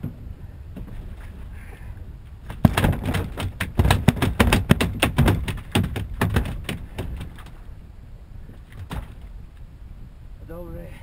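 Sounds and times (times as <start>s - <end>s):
sharp knocks and taps: 2.5s - 7.5s.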